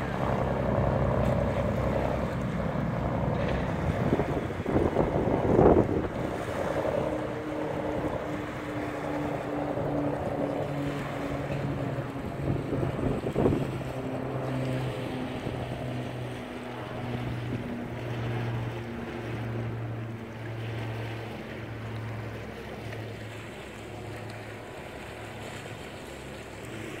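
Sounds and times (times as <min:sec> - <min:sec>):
wind on microphone: 0:00.0 - 0:20.1
boat engine throbbing: 0:00.0 - 0:27.0.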